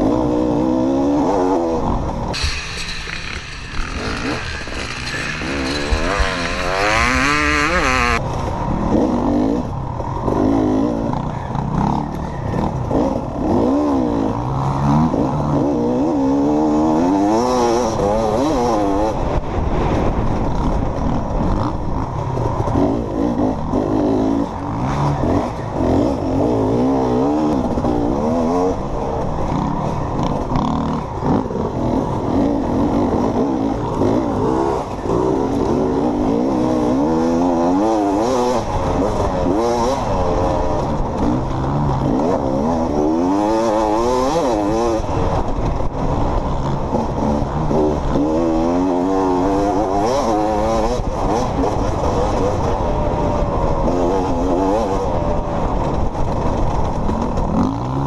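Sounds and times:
dirt bike engine revving: 0:00.0 - 0:08.2, 0:20.6 - 0:58.0.

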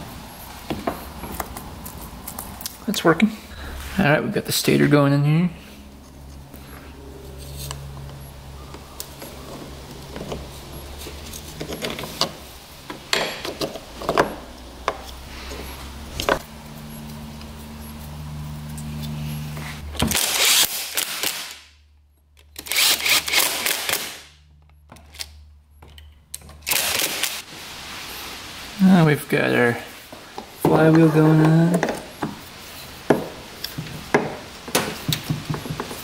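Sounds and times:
steady low hum: 0:03.2 - 0:13.1, 0:13.8 - 0:20.2.

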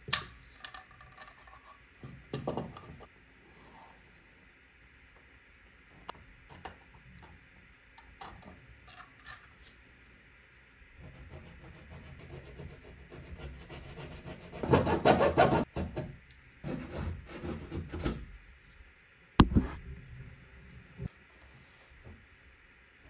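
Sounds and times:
blade sawing drywall: 0:11.0 - 0:15.7, 0:16.6 - 0:18.2
sharp crack: 0:19.4 - 0:19.8.

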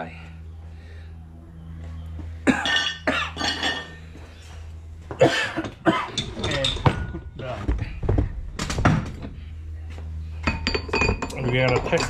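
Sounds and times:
low steady hum: 0:00.0 - 0:12.0
person coughing: 0:02.5 - 0:03.5, 0:05.2 - 0:06.2.

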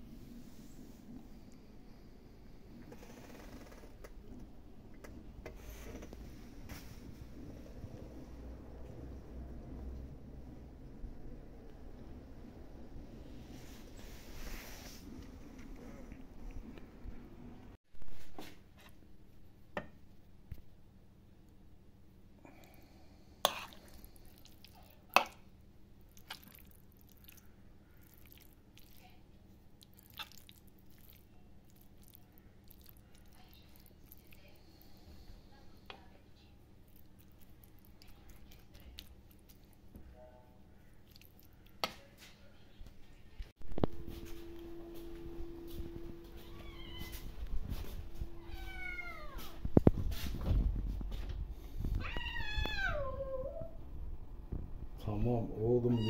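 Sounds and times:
pasta squishing: 0:23.4 - 0:35.0, 0:36.7 - 0:39.9, 0:40.8 - 0:42.2.

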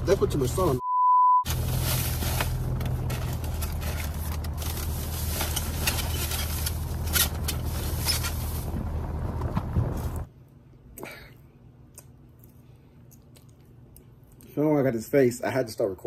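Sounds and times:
rustles and clicks of food packaging: 0:01.5 - 0:10.3.

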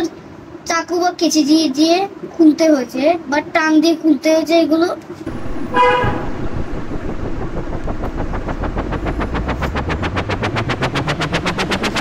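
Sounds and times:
low hum rising in pitch: 0:05.3 - 0:12.0.

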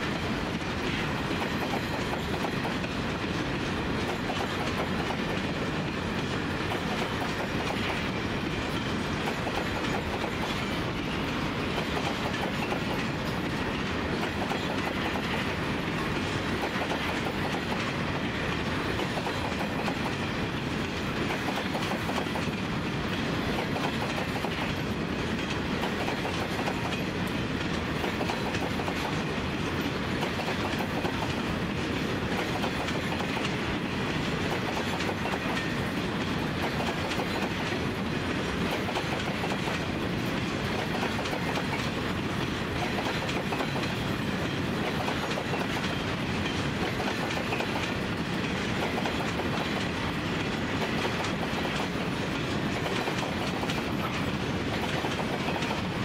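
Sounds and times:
train wheels clicking over rails: 0:00.0 - 0:56.0.

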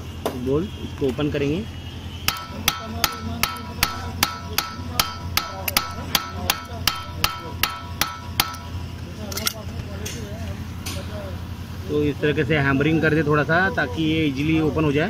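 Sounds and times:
hammer striking metal key: 0:02.3 - 0:08.7
light rattling clicks: 0:09.3 - 0:11.0.

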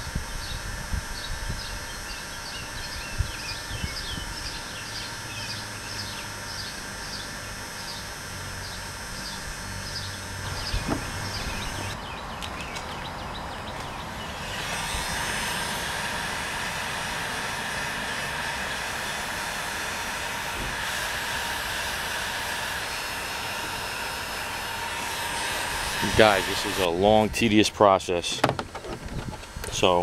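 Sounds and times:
rushing mechanical drone: 0:00.0 - 0:30.0
birds chirping: 0:01.2 - 0:14.8.

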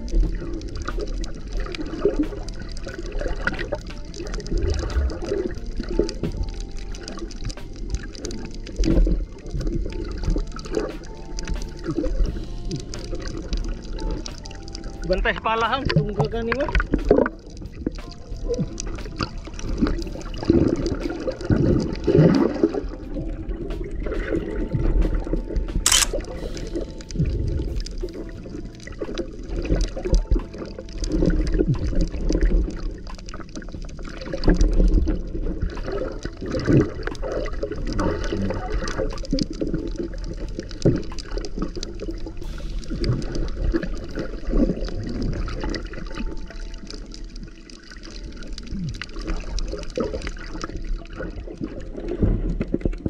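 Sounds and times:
clicks and crackles: 0:00.0 - 0:22.6, 0:25.1 - 0:53.0
underwater gurgling and sloshing: 0:00.0 - 0:53.0.

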